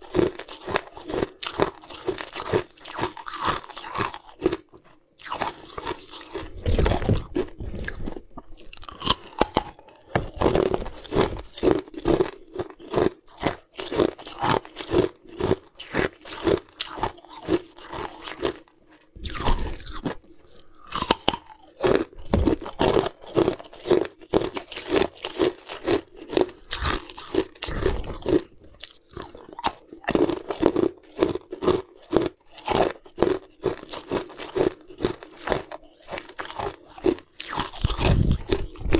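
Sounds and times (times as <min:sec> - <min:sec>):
ice crunching while chewed: 0:00.0 - 0:38.9.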